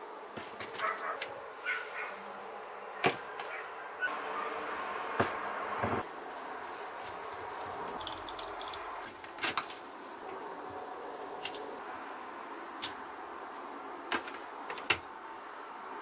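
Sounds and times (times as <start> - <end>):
faint steady hiss: 6.0 - 16.0.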